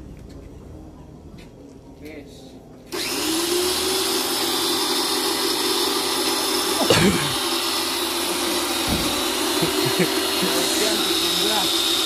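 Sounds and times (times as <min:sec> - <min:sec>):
pressure washer motor humming: 0:02.9 - 0:12.0
thump: 0:08.9 - 0:09.2.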